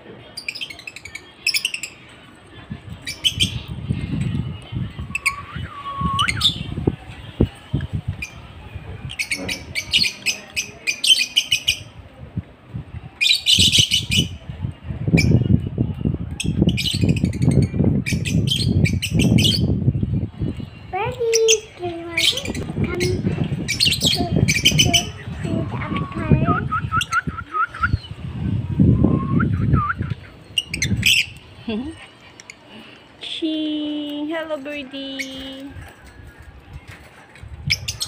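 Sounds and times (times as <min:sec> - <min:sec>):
lovebirds chirping: 0:16.4 - 0:28.4, 0:29.5 - 0:36.9.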